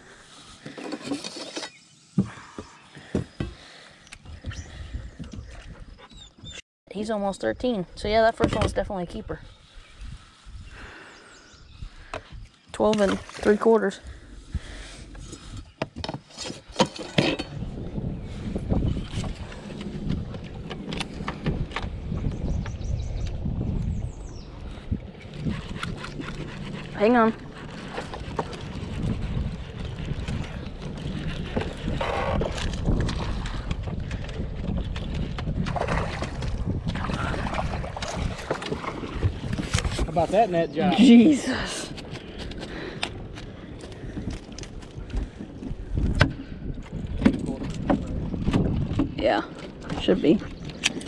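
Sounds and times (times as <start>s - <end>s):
wind buffeting microphone: 2.3s - 6.6s, 7.4s - 16.0s, 17.2s - 51.0s
steady low rumble: 17.4s - 40.1s
splashing and knocking on boat: 31.6s - 40.2s.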